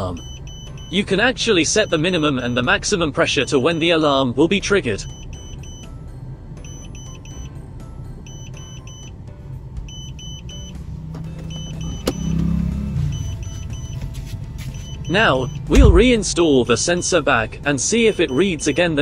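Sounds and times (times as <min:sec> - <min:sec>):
short high alarm beeps: 0:00.1 - 0:01.0, 0:01.8 - 0:02.7, 0:05.0 - 0:05.9, 0:06.6 - 0:07.5, 0:08.3 - 0:09.1, 0:09.9 - 0:10.8, 0:11.5 - 0:12.4, 0:13.0 - 0:14.0, 0:14.7 - 0:15.8, 0:18.1 - 0:19.0
low rumble: 0:15.5 - 0:16.4.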